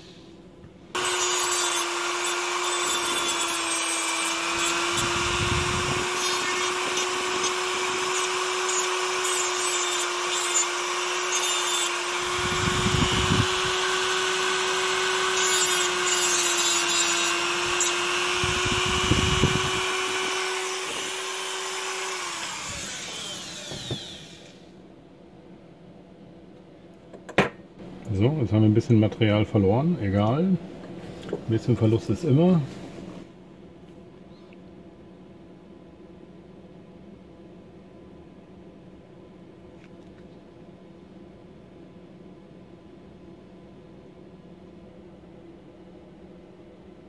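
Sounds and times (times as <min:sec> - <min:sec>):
rotary tool grinding metal: 0:01.0 - 0:24.5.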